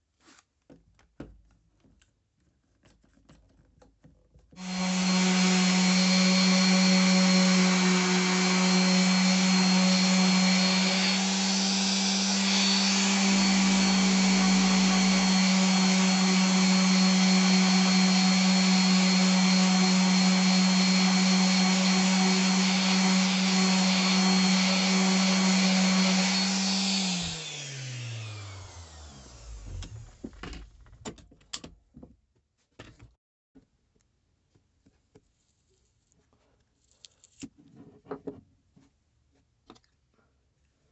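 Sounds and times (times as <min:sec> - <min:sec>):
orbital sander running: 0:04.6 - 0:30.3.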